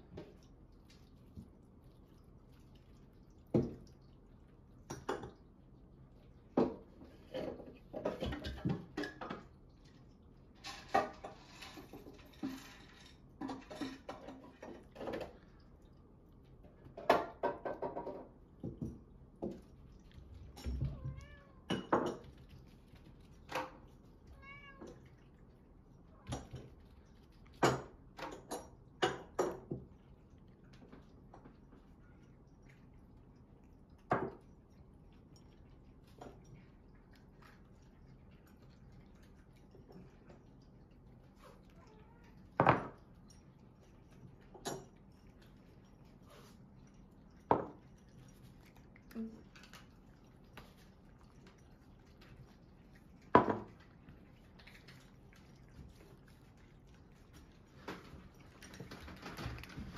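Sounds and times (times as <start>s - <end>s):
cats meowing: 20.6s - 21.9s, 24.2s - 25.2s, 41.6s - 42.6s.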